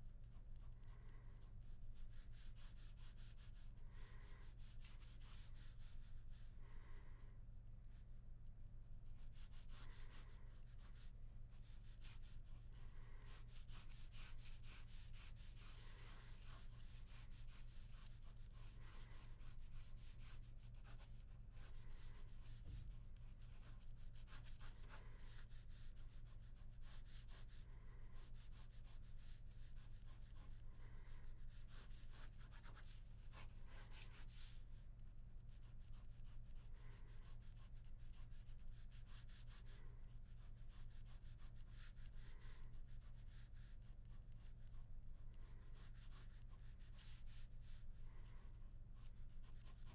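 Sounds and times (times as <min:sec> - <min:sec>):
low steady hum: 0:00.0 - 0:49.9
pen scratching on paper: 0:02.0 - 0:06.4, 0:09.4 - 0:12.6, 0:13.2 - 0:27.6, 0:31.5 - 0:34.6, 0:35.6 - 0:39.8, 0:40.5 - 0:44.4, 0:45.7 - 0:47.8, 0:49.0 - 0:49.9.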